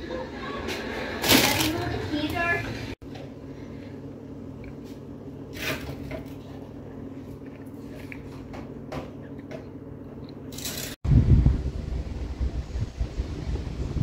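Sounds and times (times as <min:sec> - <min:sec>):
steady low hum: 0:00.0 - 0:05.6.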